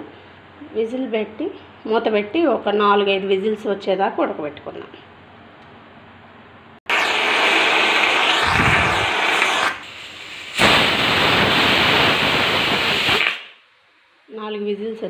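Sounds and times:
pressure cooker whistle hissing: 0:06.9 - 0:13.6.

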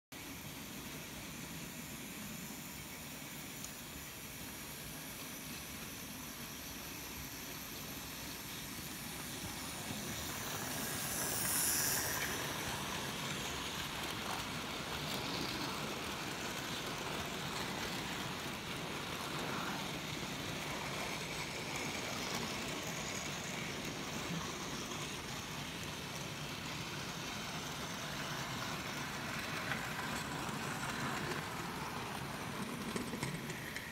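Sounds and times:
model wagon wheels rattling on rails: 0:09.2 - 0:26.4, 0:28.1 - 0:33.9.

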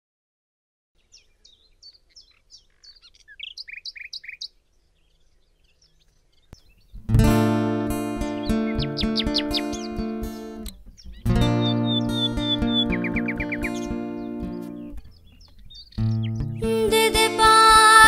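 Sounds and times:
small birds chirping: 0:01.0 - 0:18.0
strummed acoustic guitar chord: 0:07.0 - 0:15.3, 0:16.0 - 0:18.0.

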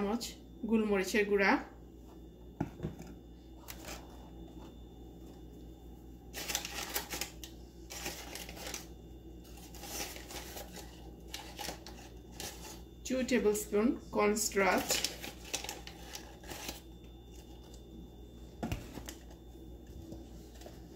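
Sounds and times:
steady low hum: 0:00.0 - 0:20.9
kitchen items rustling and clicking: 0:06.4 - 0:08.9, 0:09.5 - 0:12.8.

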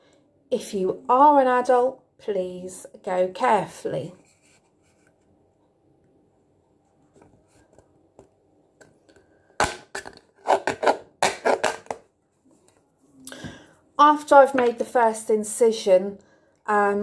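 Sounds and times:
knife cutting into a can: 0:09.6 - 0:12.0.

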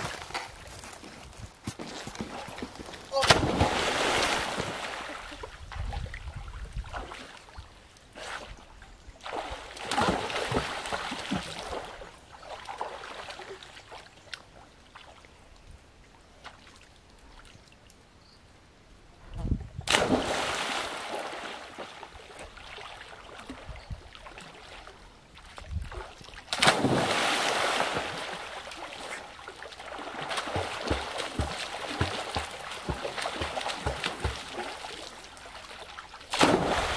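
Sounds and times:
sloshing water: 0:02.3 - 0:07.6, 0:09.2 - 0:14.3, 0:19.8 - 0:36.9
splashes into river: 0:03.1 - 0:07.6, 0:09.2 - 0:14.0, 0:19.8 - 0:24.9, 0:25.8 - 0:36.9.

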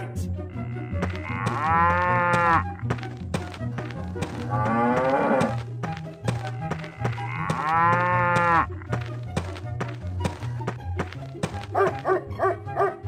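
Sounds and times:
children's music with steady beat: 0:00.0 - 0:13.0
cow mooing: 0:00.5 - 0:02.9, 0:04.3 - 0:05.6, 0:06.5 - 0:08.8.

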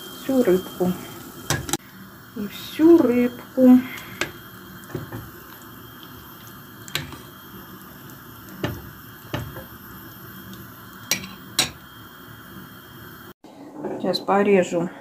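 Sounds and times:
low hiss of water on stove: 0:00.0 - 0:13.4
metal ladle knocking on pot: 0:08.6 - 0:09.6.

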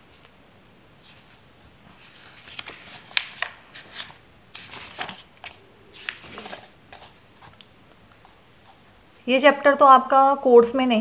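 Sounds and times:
book pages flipping: 0:00.0 - 0:00.4, 0:01.0 - 0:08.9.

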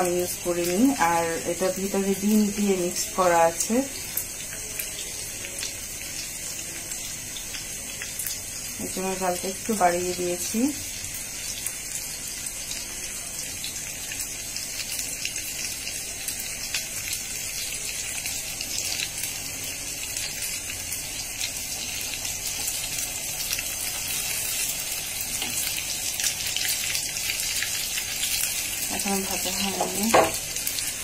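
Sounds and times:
cakes sizzling in hot oil: 0:00.0 - 0:31.0.

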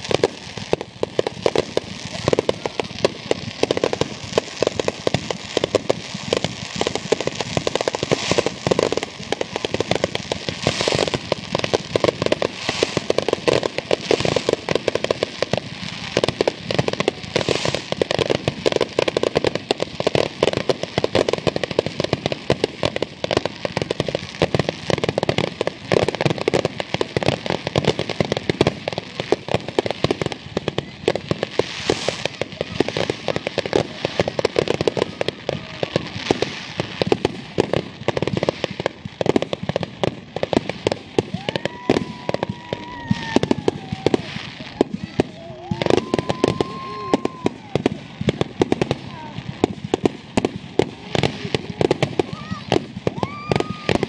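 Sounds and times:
fireworks banging and crackling: 0:00.0 - 0:54.0
ground fountains spraying: 0:00.0 - 0:54.0
gliding firework whistle: 0:41.3 - 0:44.8, 0:45.6 - 0:47.8.

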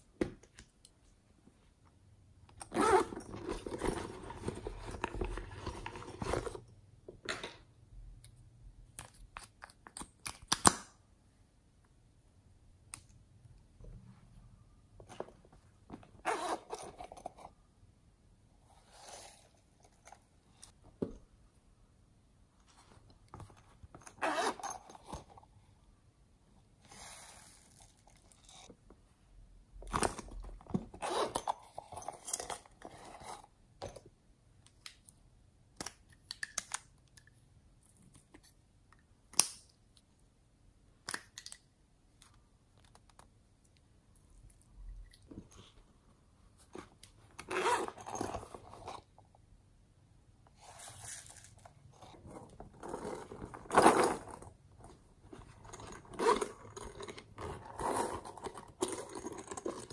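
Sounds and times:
pouch crinkling and scraping: 0:50.6 - 0:59.9.

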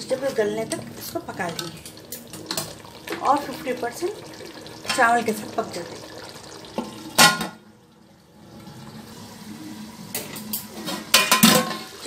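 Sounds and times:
metal pot and lid clanking: 0:06.8 - 0:07.6, 0:10.1 - 0:12.0.

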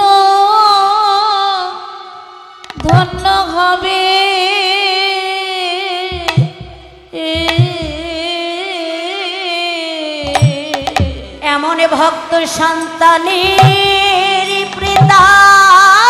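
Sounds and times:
woman singing long notes: 0:02.8 - 0:16.0
drum strokes: 0:06.1 - 0:08.2, 0:10.2 - 0:11.4, 0:13.4 - 0:15.5.

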